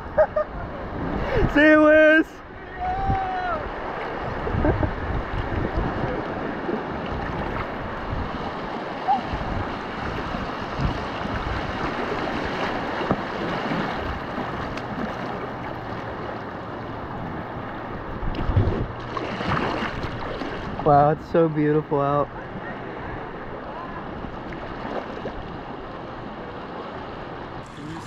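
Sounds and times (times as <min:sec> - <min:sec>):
wind rumbling on microphone: 0:00.0 - 0:21.2
river water lapping: 0:00.0 - 0:28.0.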